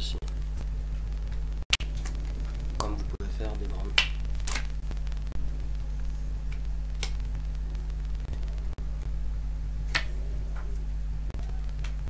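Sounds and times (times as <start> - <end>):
low electrical hum with hiss: 0.0 - 12.0
playing card snapping flicks: 3.9 - 4.8, 6.5 - 7.3, 9.9 - 10.1.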